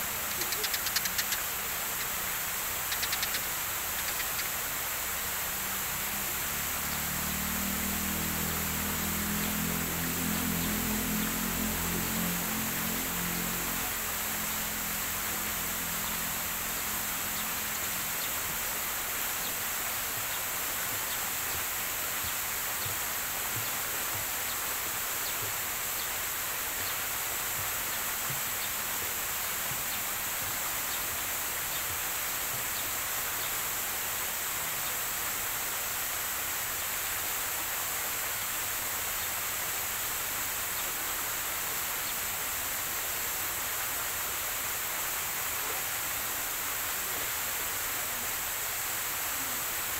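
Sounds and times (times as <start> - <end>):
high-pitched hiss: 0.0 - 49.9
faint small ticks: 0.2 - 2.2, 2.8 - 4.6.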